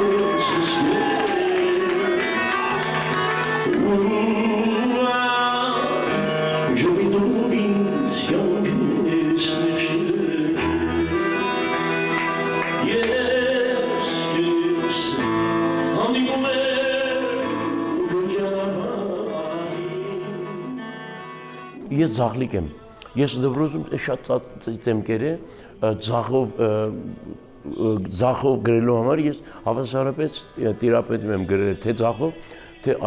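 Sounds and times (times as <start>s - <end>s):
man singing: 0.0s - 2.5s, 3.6s - 11.6s, 12.7s - 21.0s, 21.8s - 33.0s
acoustic guitar: 0.0s - 33.0s
accordion: 1.8s - 23.1s.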